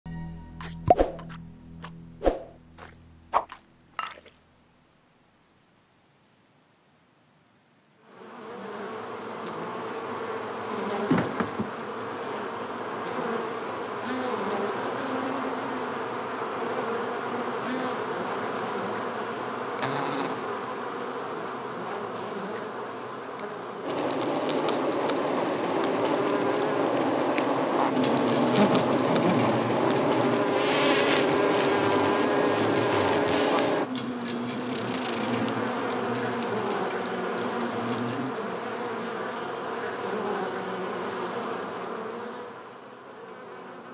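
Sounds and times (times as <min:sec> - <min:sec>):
honeybees buzzing: 0:08.1 - 0:43.9.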